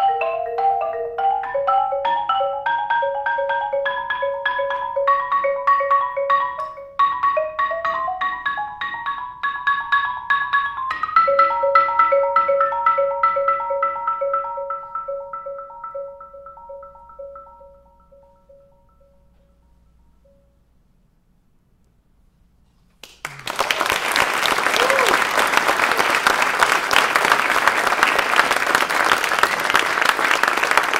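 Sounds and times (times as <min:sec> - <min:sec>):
marimba played with mallets: 0:00.0 - 0:20.4.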